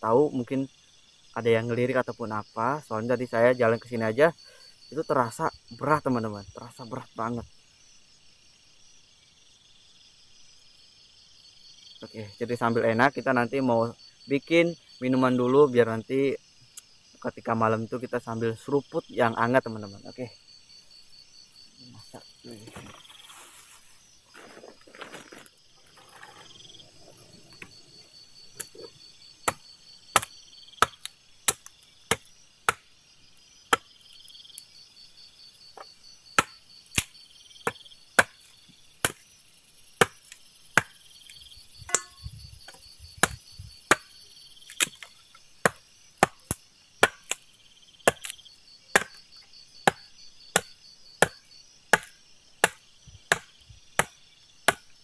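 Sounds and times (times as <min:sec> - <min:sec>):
wood being chopped: 0:28.6 - 0:32.9, 0:33.7 - 0:33.9, 0:35.8 - 0:39.2, 0:40.0 - 0:41.0, 0:41.8 - 0:44.1, 0:44.7 - 0:47.4, 0:48.0 - 0:55.0.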